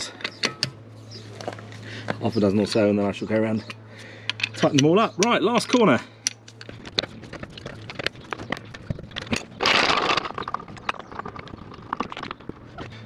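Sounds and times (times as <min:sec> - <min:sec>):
metallic tool clicks and knocks: 0:03.7 - 0:06.7.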